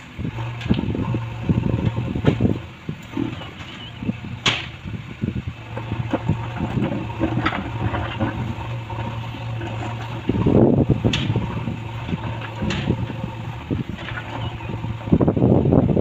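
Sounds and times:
diesel engine running: 0:00.0 - 0:16.0
stones knocking and scraping: 0:05.7 - 0:14.9.

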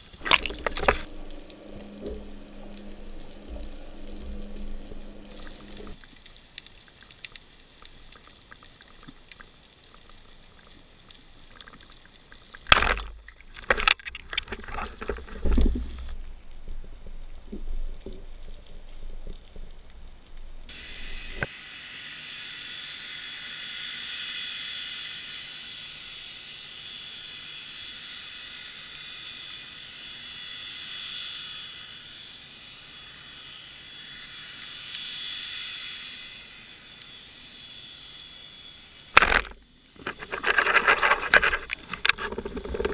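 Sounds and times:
knocks and sloshing water: 0:00.0 - 0:06.0, 0:12.6 - 0:16.2, 0:39.2 - 0:42.9
steady underwater hiss: 0:00.0 - 0:42.9.

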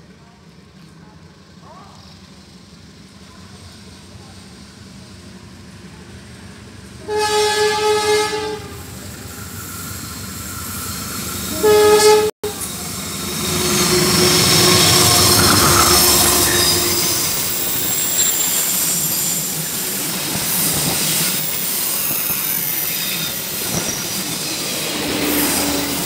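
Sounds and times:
locomotive rumble: 0:02.9 - 0:22.0
diesel locomotive horn: 0:07.0 - 0:08.9, 0:11.5 - 0:17.6.

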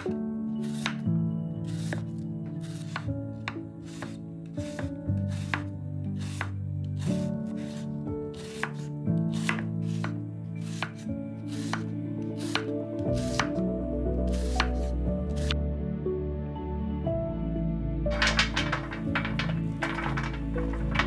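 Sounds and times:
knife slicing onion on board: 0:00.0 - 0:01.0, 0:01.7 - 0:13.6, 0:14.3 - 0:15.6
soft background music: 0:00.0 - 0:21.0.

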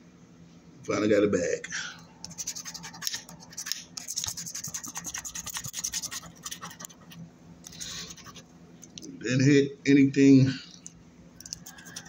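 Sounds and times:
coin scraping scratch card: 0:02.3 - 0:08.4, 0:11.4 - 0:12.0.

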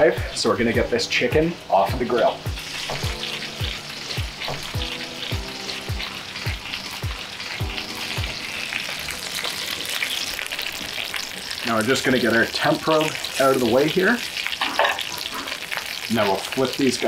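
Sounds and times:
background music with thudding beat: 0:00.0 - 0:08.6
meat sizzling in a skillet: 0:00.0 - 0:17.0.

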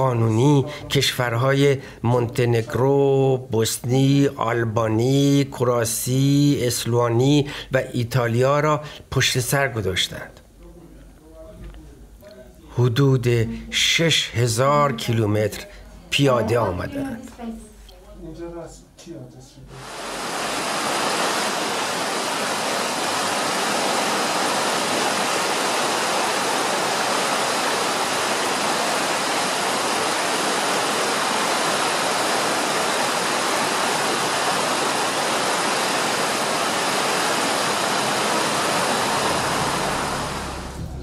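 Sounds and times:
river rapids rushing: 0:19.8 - 0:40.9.

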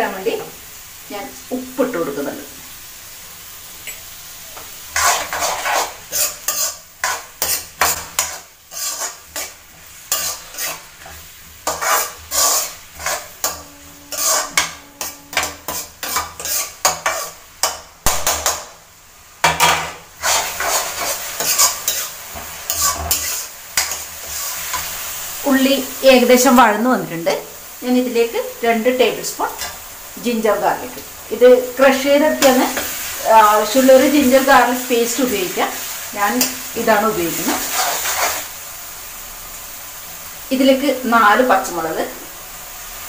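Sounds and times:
onions sizzling in oil: 0:00.0 - 0:43.0
metal ladle scraping pan: 0:04.9 - 0:18.6, 0:19.4 - 0:24.9.

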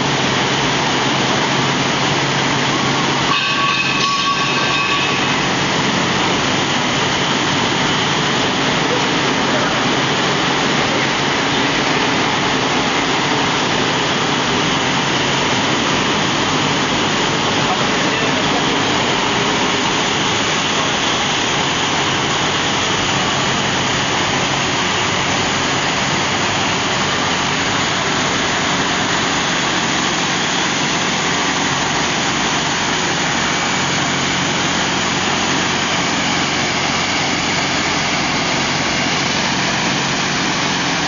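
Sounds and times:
loud machinery noise: 0:00.0 - 0:41.0.

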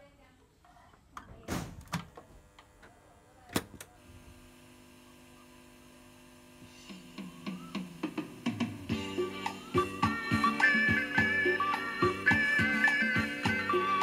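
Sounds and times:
cassette player hum: 0:01.2 - 0:14.0
music: 0:06.6 - 0:14.0.

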